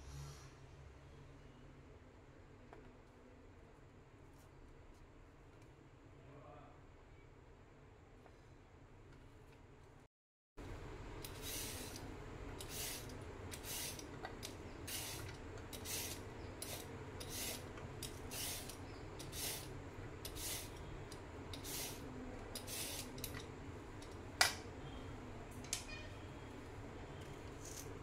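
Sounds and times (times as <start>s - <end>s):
vegetable peeler scraping carrot: 12.6s - 14.1s, 14.9s - 20.8s, 21.6s - 22.0s, 22.6s - 23.3s.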